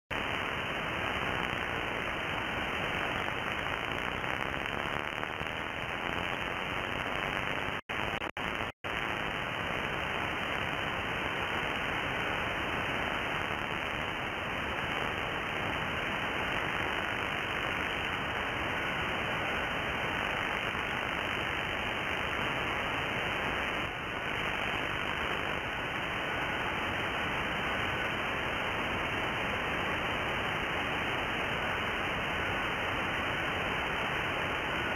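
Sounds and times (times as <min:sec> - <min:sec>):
radio receiver hiss: 0:00.1 - 0:34.9
weak digital radio signal: 0:00.1 - 0:34.9.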